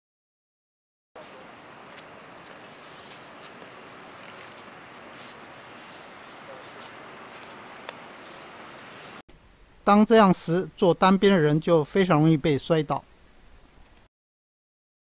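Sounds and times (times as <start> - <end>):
crickets chirring: 1.2 - 9.2
faint ticks: 7.4 - 8.0.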